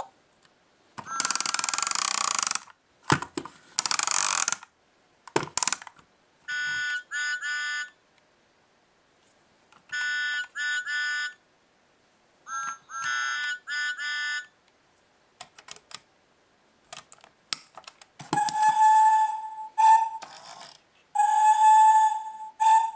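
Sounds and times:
plastic toy clicks: 1.0s - 4.7s, 5.3s - 6.0s
toy chiming musical notes: 1.1s - 1.6s, 6.5s - 8.0s, 9.9s - 11.4s, 12.5s - 14.5s
steam whistle sound effect: 18.4s - 20.2s, 21.2s - 22.9s.

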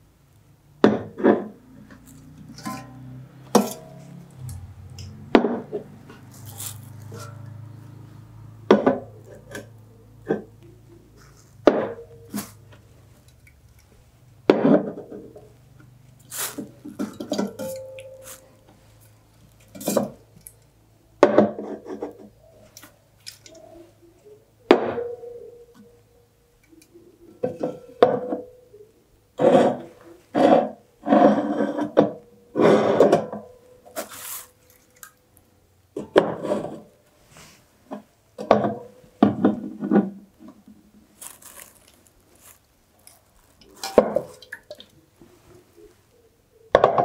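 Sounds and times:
plastic bag rustling: 6.1s - 7.5s, 34.0s - 35.1s, 41.0s - 44.6s.

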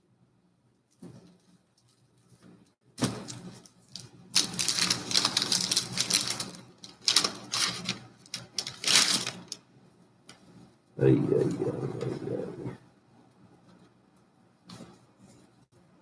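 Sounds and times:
paper crinkling and rustling: 0.9s - 9.6s.

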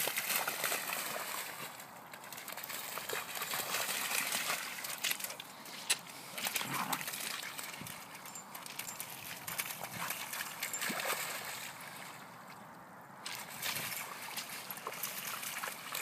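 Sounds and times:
dogs splashing through puddle: 0.0s - 12.6s, 13.2s - 16.0s
paws slapping wet mud: 0.0s - 12.6s, 13.2s - 16.0s.

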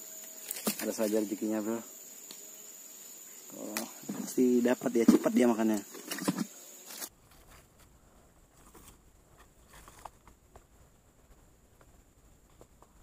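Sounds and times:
person speaking: 3.5s - 6.0s.

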